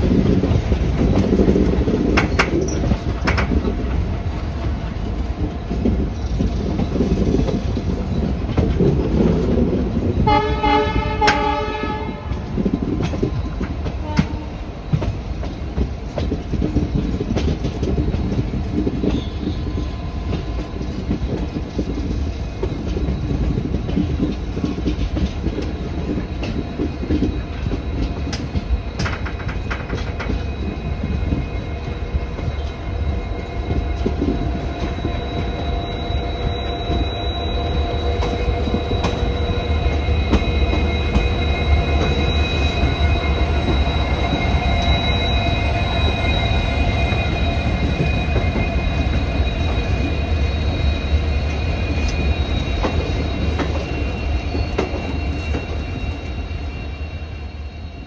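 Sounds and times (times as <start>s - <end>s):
train rolling over rails: 0.0s - 58.0s
high metallic squeal: 18.4s - 58.0s.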